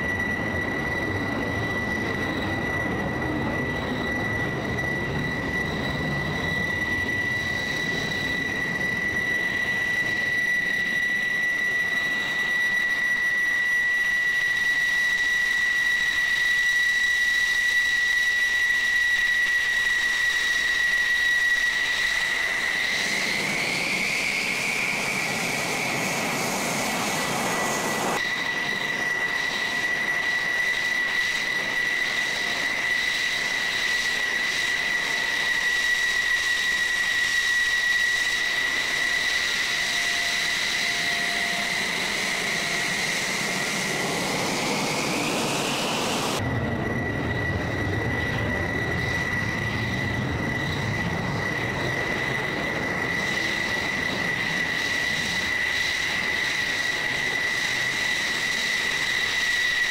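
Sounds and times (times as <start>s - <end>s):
jet engine whine: 0.0s - 59.9s
rushing jet noise: 15.8s - 59.9s.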